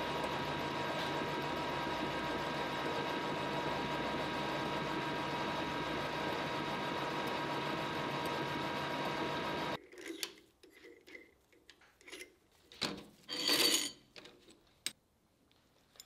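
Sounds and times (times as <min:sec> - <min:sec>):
metal lathe running: 0:00.0 - 0:09.8.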